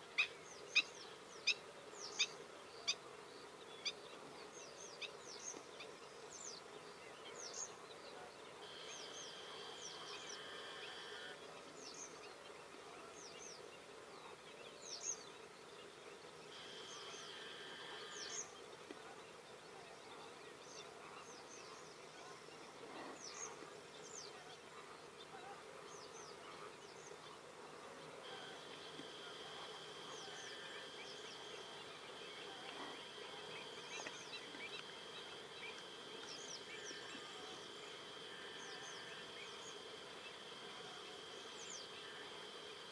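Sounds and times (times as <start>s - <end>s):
insect buzz: 8.6s - 11.4s, 16.3s - 18.6s, 27.1s - 42.9s.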